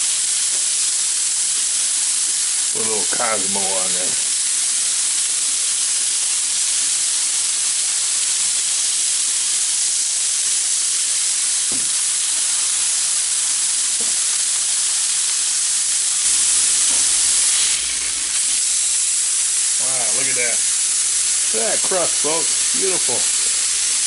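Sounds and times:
burger patties sizzling on griddle: 0:00.0 - 0:24.0.

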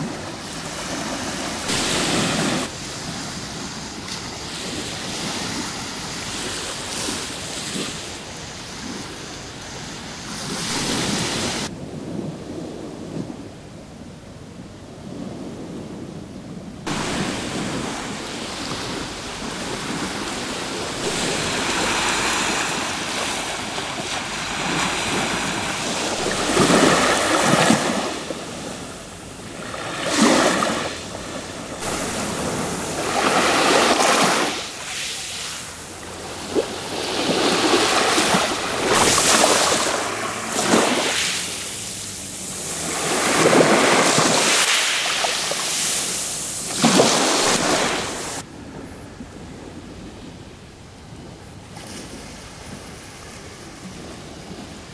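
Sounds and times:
waves washing over pebble beach: 0:00.0 - 0:08.6, 0:09.2 - 0:11.7, 0:16.9 - 0:48.4.

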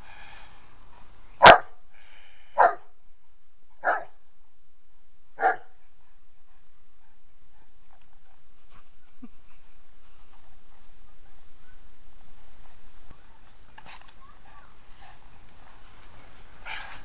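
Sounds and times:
dog barking: 0:01.4 - 0:01.8, 0:02.6 - 0:02.9, 0:03.8 - 0:04.2, 0:05.4 - 0:05.8.

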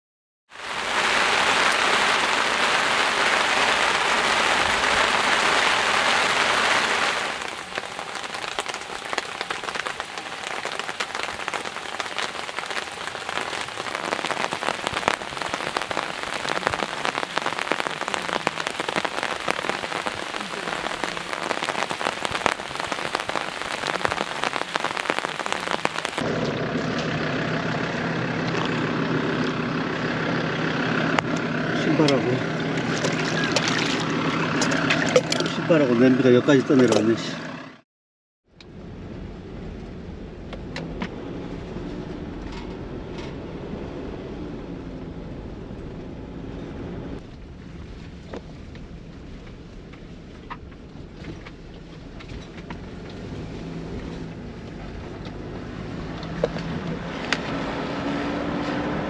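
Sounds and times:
rain falling: 0:00.5 - 0:26.3, 0:31.1 - 0:36.3, 0:47.2 - 0:59.0
raindrops ticking on a surface: 0:00.6 - 0:26.2, 0:47.2 - 0:57.7.

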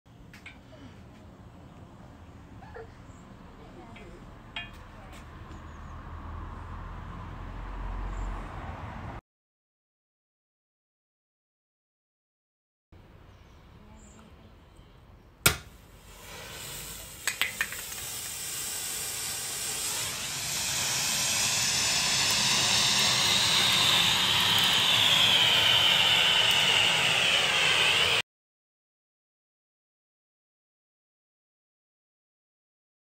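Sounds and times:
fire extinguisher spraying hiss: 0:15.6 - 0:28.2.

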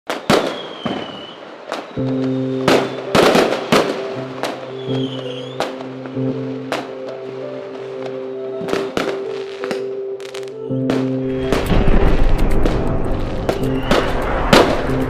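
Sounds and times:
whistling firework falling in pitch: 0:00.1 - 0:07.0, 0:10.8 - 0:15.0
fireworks bangs and crackles: 0:00.1 - 0:15.0
music with sustained chord: 0:02.0 - 0:15.0.

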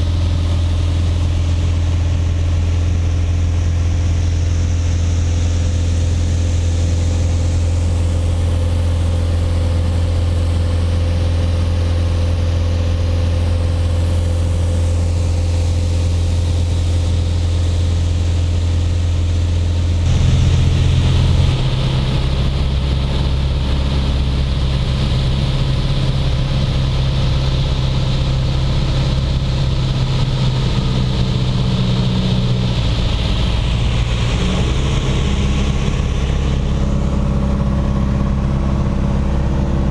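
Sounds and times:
small plane engine droning: 0:00.0 - 0:39.9.

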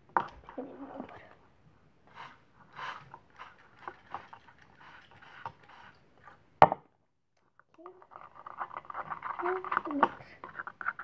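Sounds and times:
stick stirring liquid in plastic cup: 0:02.1 - 0:06.4, 0:07.4 - 0:11.0
stick scraping and tapping cup: 0:02.2 - 0:06.0, 0:07.7 - 0:11.0.

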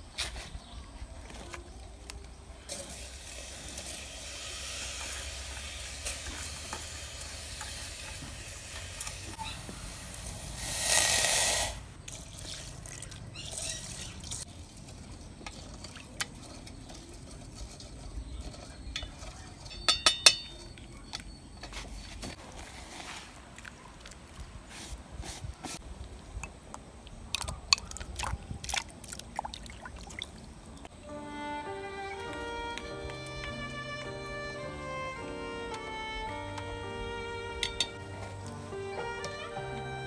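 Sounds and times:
water pouring into pot: 0:02.7 - 0:09.3, 0:12.1 - 0:16.7
stirring in pot: 0:12.1 - 0:25.8
wooden spoon clinking on metal pot: 0:14.8 - 0:21.9, 0:37.6 - 0:38.2
water splashing: 0:27.3 - 0:30.9.

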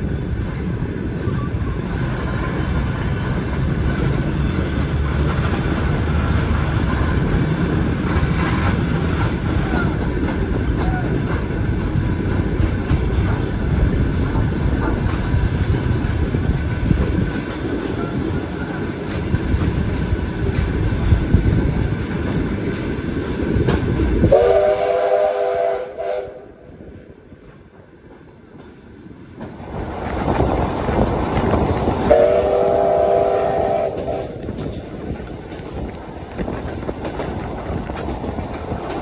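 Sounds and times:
train rumbling and rattling: 0:00.0 - 0:39.0
steam locomotive whistle chord: 0:24.3 - 0:26.6, 0:32.1 - 0:34.4.

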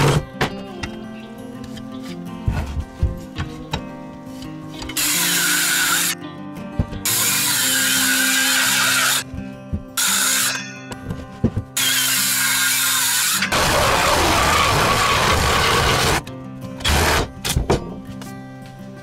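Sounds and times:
background music: 0:00.0 - 0:19.0
power tool running: 0:11.8 - 0:16.2.

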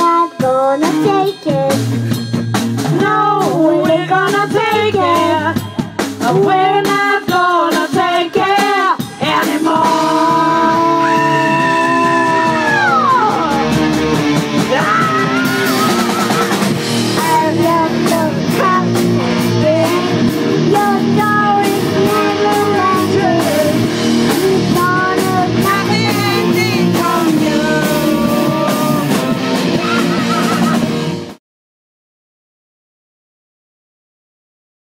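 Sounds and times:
girl singing into a microphone: 0:00.0 - 0:01.8, 0:02.9 - 0:05.6, 0:06.2 - 0:13.3, 0:17.1 - 0:29.2
rock band playing: 0:00.0 - 0:31.4.

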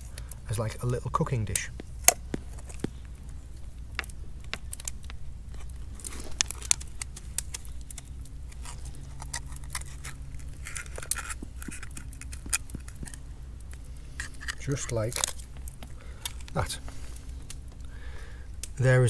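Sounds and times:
knife scraping scallop shell: 0:05.5 - 0:13.2, 0:14.1 - 0:15.4.

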